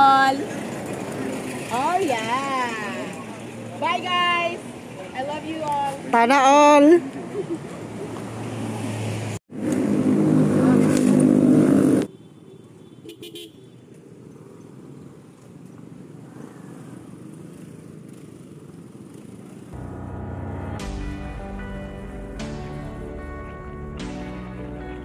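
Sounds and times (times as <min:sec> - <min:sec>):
traffic and road noise: 0:00.0 - 0:25.0
vehicle horn: 0:12.0 - 0:13.8
music: 0:19.8 - 0:25.0.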